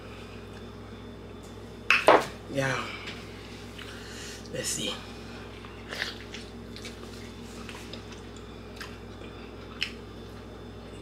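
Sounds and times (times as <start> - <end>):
steady low hum: 0.0 - 11.0
person chewing wetly: 5.5 - 10.4.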